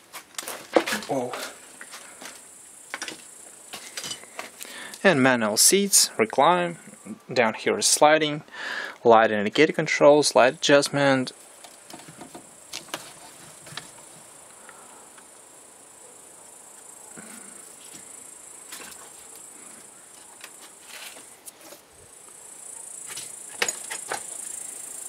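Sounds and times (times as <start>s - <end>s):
insects chirring: 0.0s - 25.0s
handling clicks and knocks: 23.0s - 24.4s.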